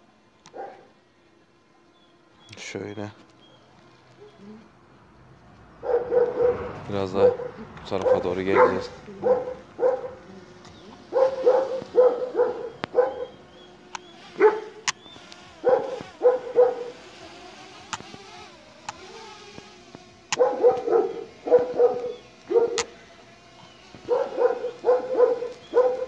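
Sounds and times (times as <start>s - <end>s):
dogs barking deeply: 0.5s - 0.9s, 5.7s - 14.9s, 15.5s - 17.8s, 20.2s - 26.0s.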